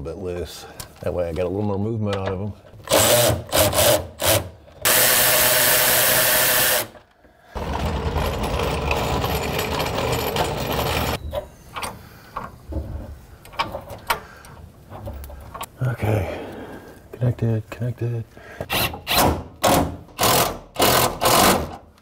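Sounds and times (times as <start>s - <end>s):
cordless power tool spinning: 2.9s - 7.0s, 7.6s - 11.2s.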